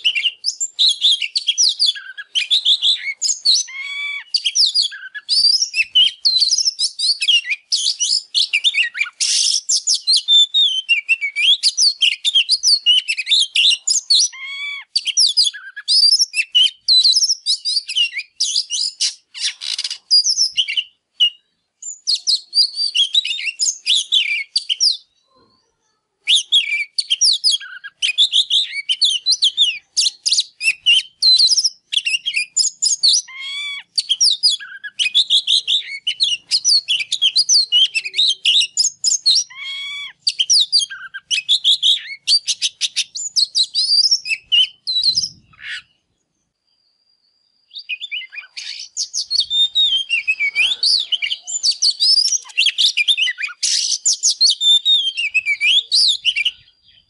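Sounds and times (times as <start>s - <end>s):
magpie-robin singing: 0.0s - 25.3s, 26.2s - 46.3s, 47.6s - 57.0s.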